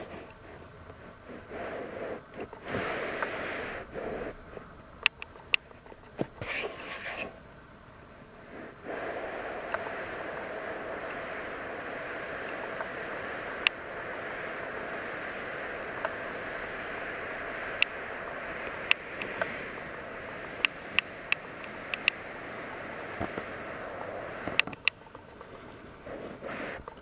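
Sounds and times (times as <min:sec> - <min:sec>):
sharp clicks: 0:05.0 - 0:06.0, 0:20.6 - 0:22.2.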